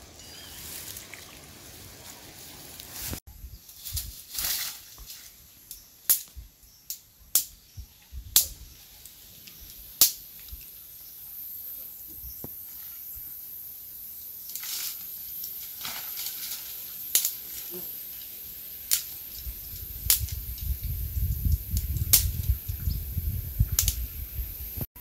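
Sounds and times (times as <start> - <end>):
steady high-pitched hiss: 0.0 - 24.9.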